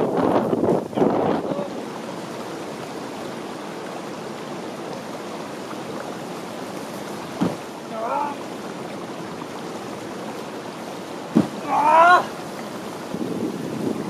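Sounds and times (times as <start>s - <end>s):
wind buffeting microphone: 0.0s - 2.8s, 12.5s - 14.0s
stream flowing: 0.0s - 14.0s.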